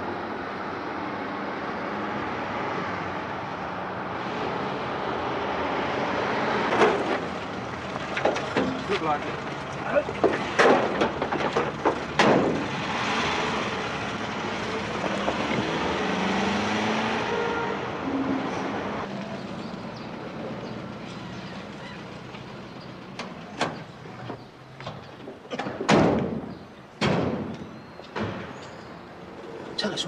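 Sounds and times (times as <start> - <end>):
tyres rumbling on road: 0.0 - 30.0
van doors shutting: 23.1 - 28.7.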